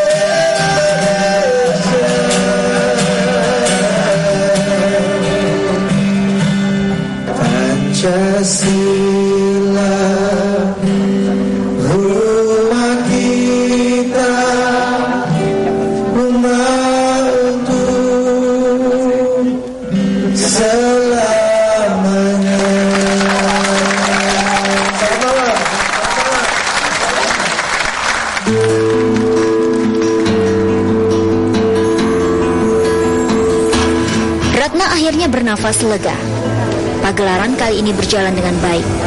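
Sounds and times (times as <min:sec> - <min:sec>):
person singing long notes: 0:00.0 - 0:06.3, 0:07.3 - 0:25.3
guitar accompaniment: 0:00.0 - 0:39.0.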